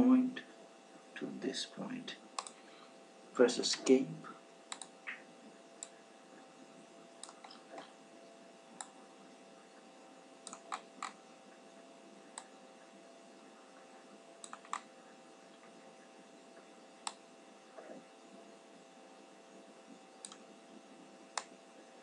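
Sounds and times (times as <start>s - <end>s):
faint steady hum: 0.0s - 22.0s
computer mouse clicks: 2.4s - 2.6s, 4.7s - 5.2s, 7.2s - 7.9s, 8.8s - 9.0s, 10.4s - 11.2s, 14.4s - 14.9s, 17.0s - 17.2s, 20.2s - 20.5s, 21.3s - 21.6s.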